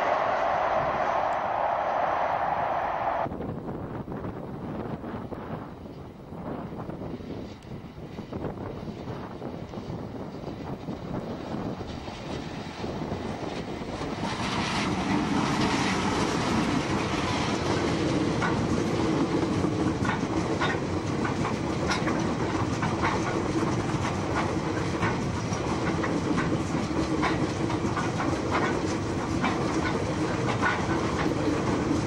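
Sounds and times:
freight train rumbling past: 0.0s - 32.0s
wheels clicking over rail joints: 7.4s - 32.0s.

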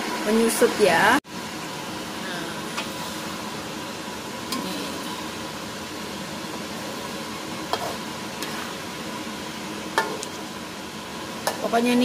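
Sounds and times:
sauce sizzling in oil: 0.0s - 12.0s
spatula knocking a pan: 10.0s - 10.3s.

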